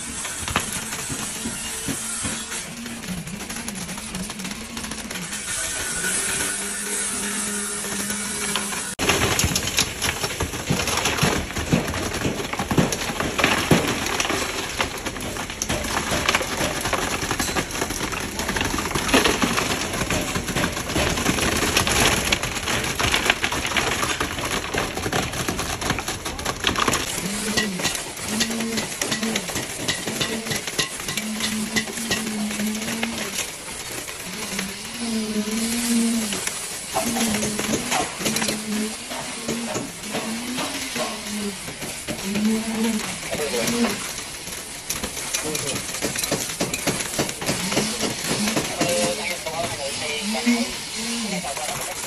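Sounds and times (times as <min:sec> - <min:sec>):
wet concrete spattering from hose: 0:00.0 - 0:52.0.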